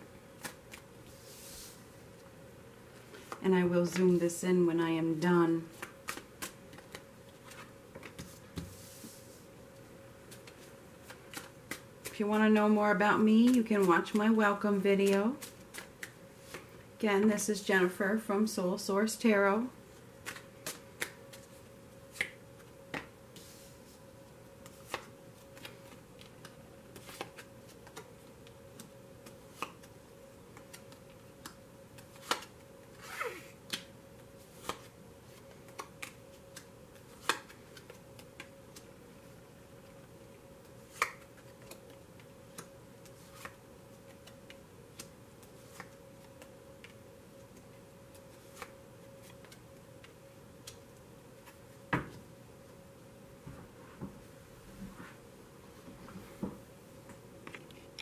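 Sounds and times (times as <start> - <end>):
faint steady hum: 0.0 - 58.0
cards snapping and tapping: 10.3 - 12.1, 20.2 - 21.4, 30.5 - 32.6, 35.7 - 38.9, 40.9 - 42.7.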